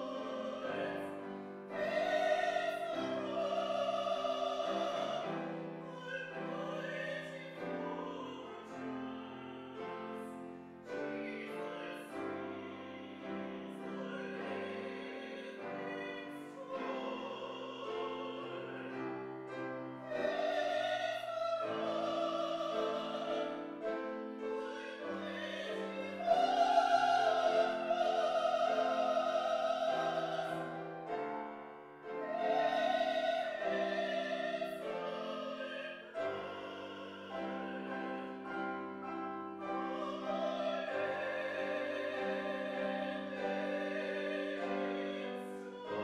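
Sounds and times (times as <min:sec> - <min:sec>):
piano: 0:00.0 - 0:46.0.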